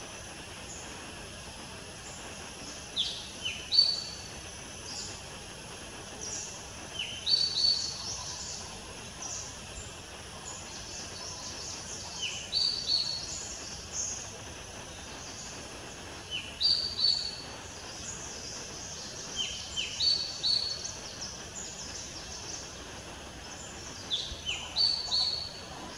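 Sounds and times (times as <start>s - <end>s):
faint high hiss: 0.0s - 25.9s
birds chirping: 16.3s - 25.9s.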